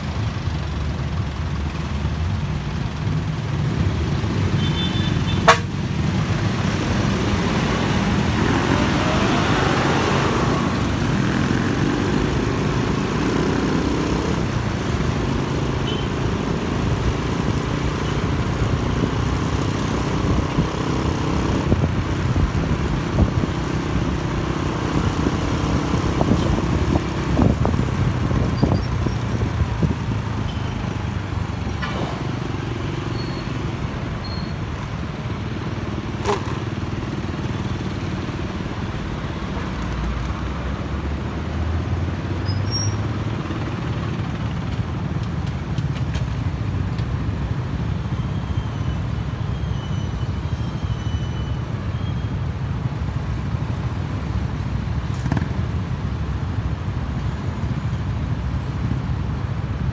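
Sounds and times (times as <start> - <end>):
street traffic: 0.0 - 59.9
horn toot: 4.6 - 5.8
motorcycle engines accelerating: 6.0 - 48.1, 53.0 - 59.9.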